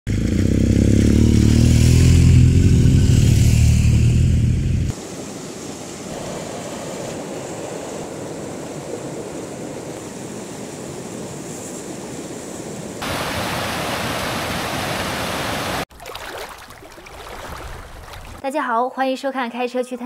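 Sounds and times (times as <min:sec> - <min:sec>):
stream rushing over stones: 0:13.0 - 0:18.4.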